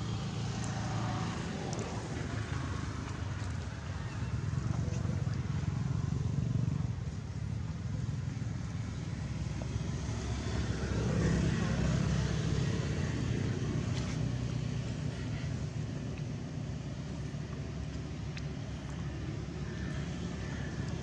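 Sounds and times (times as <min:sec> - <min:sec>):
road traffic rumble: 0:00.0 - 0:21.0
vehicle passing: 0:08.8 - 0:15.5.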